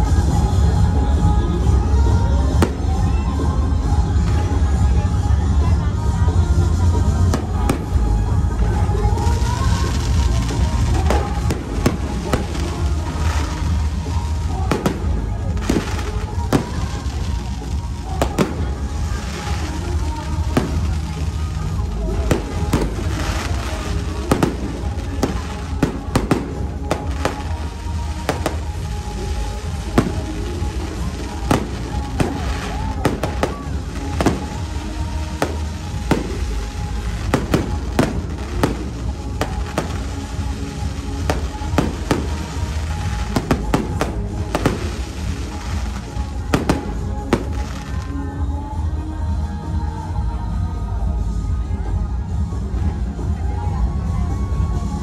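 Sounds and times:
loud music with bass: 0.0s - 55.0s
firework shells bursting: 22.3s - 48.0s.

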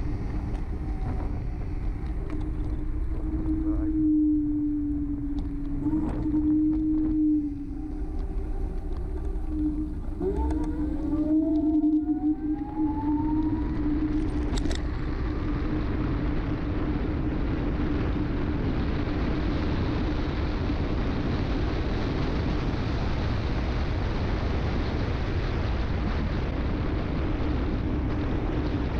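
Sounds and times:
electric motor whining: 0.0s - 15.3s
wind rushing over microphone: 0.0s - 28.9s.

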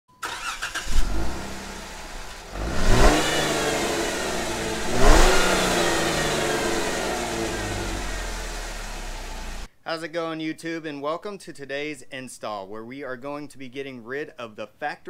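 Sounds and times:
car engine starting and revving: 0.2s - 9.7s.

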